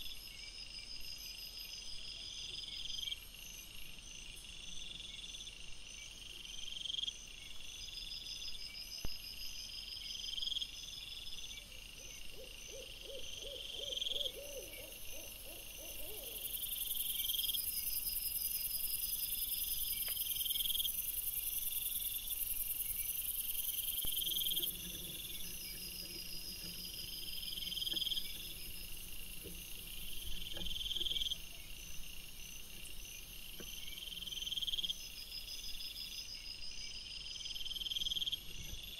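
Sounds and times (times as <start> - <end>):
night insects chirping: 0.0 - 38.9
quavering pulsed animal call: 12.3 - 16.7.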